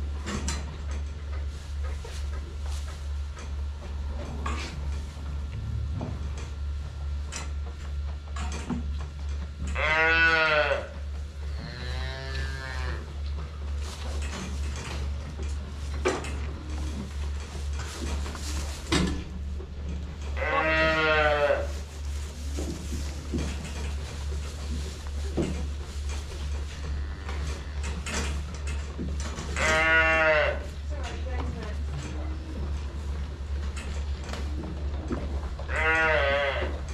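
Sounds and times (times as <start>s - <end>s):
low pulsing hum: 0.0s - 36.9s
calves bawling: 29.4s - 30.9s, 34.9s - 36.9s.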